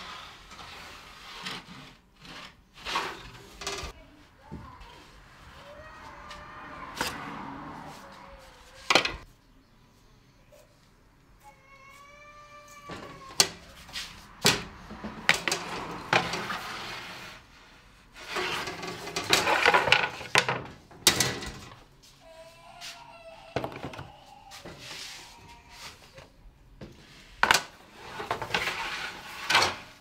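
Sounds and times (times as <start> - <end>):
metal loaf tins clattering: 18.2 - 21.8.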